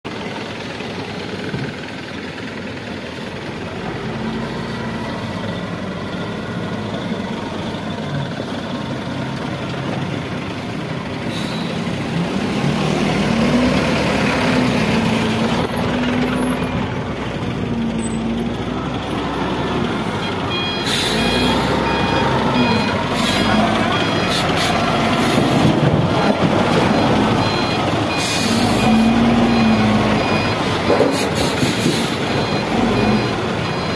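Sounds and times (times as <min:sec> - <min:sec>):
diesel engine revving: 0:02.4 - 0:33.9
reversing alarm beeping: 0:17.9 - 0:19.4, 0:20.1 - 0:33.9.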